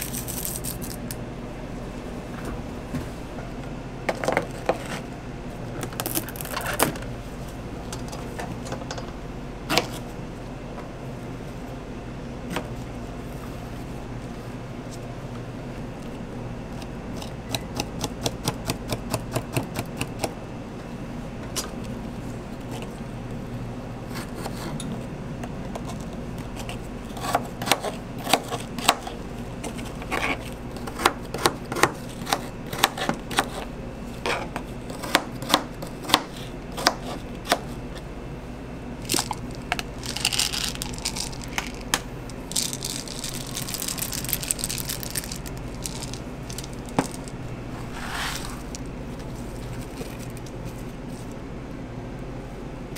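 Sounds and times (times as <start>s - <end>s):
steady background hum: 0.0s - 52.9s
knife chopping on plastic board: 27.2s - 29.1s, 30.8s - 33.6s, 34.9s - 37.7s.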